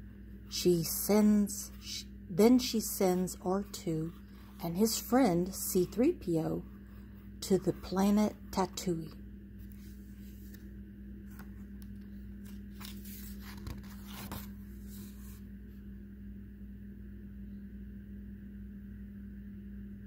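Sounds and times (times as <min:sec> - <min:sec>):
low hum: 0:00.0 - 0:20.0
book page turning: 0:09.6 - 0:15.4.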